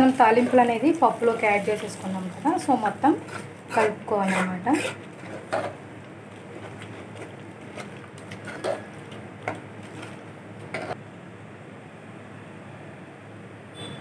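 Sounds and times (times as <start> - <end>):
metal spoon scraping a pot: 3.1 - 5.8, 6.4 - 11.0.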